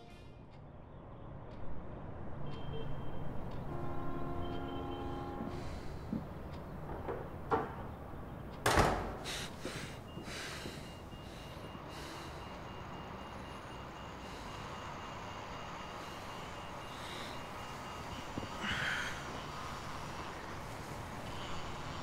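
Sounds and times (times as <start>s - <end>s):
knocks and thump: 6.9s - 7.9s, 8.6s - 9.3s.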